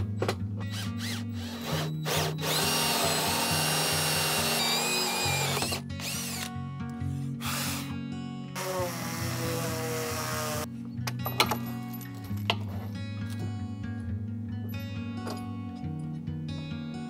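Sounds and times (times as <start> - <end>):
background music: 0.0 - 17.0
drill whining through wood: 0.6 - 6.5, 7.1 - 8.0, 8.6 - 10.7.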